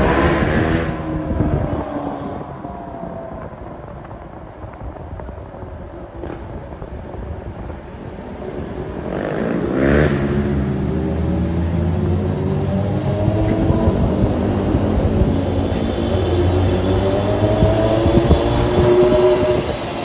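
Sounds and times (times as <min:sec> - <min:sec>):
road traffic noise: 0:00.0 - 0:20.0
engine revving: 0:12.0 - 0:20.0.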